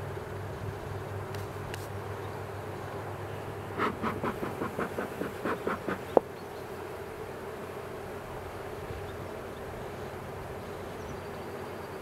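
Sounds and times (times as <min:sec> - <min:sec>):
bees humming: 0:03.3 - 0:08.1.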